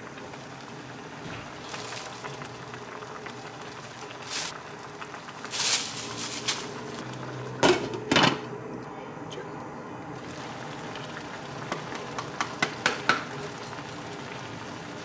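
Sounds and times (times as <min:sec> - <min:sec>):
broth simmering in a pan: 0:00.0 - 0:08.6, 0:10.2 - 0:15.0
onions dropped in rustling: 0:04.2 - 0:04.6, 0:05.4 - 0:07.0.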